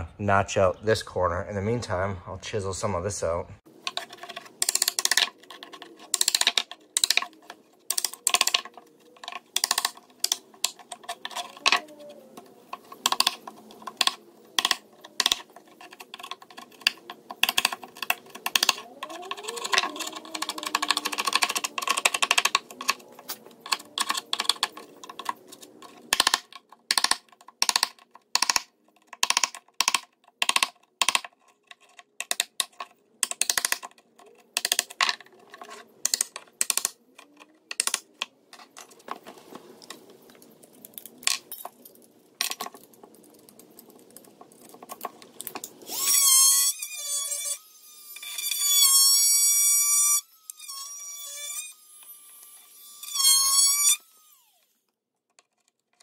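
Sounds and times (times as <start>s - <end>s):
chisel cutting particleboard: 3.9s - 38.1s.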